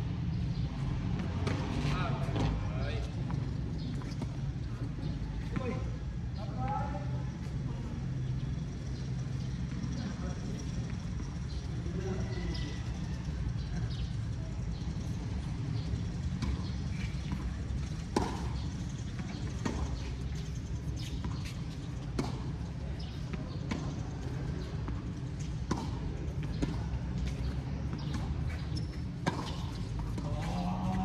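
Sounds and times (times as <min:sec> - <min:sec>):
tennis ball struck by rackets: 0:16.4 - 0:18.7, 0:22.1 - 0:24.0, 0:24.8 - 0:26.9, 0:27.5 - 0:31.0
ball bouncing on court: 0:21.0 - 0:24.0, 0:24.9 - 0:31.0.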